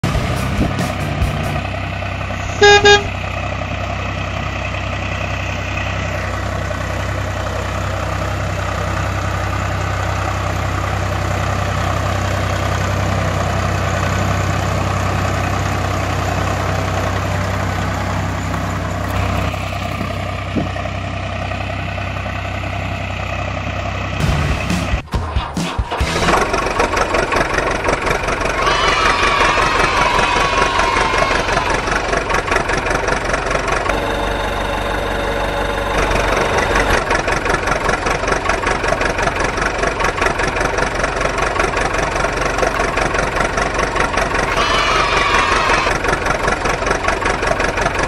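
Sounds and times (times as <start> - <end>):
vehicle engine running: 0.0 - 48.0
horn toot: 2.4 - 3.2, 28.4 - 32.1, 44.3 - 46.0.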